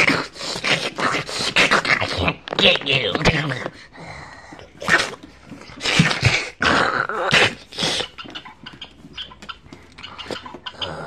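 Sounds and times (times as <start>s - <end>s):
person growling and snarling: 4.0s - 8.1s.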